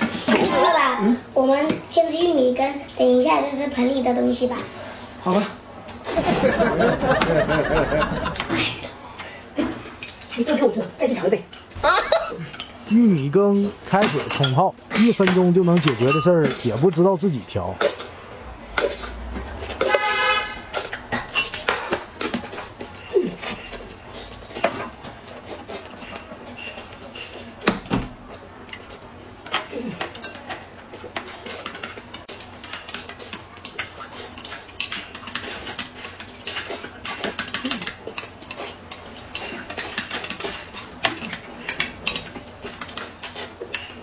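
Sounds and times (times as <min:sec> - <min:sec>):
spoons clinking in glass cups: 0:15.8 - 0:16.7
chewing: 0:28.7 - 0:44.0.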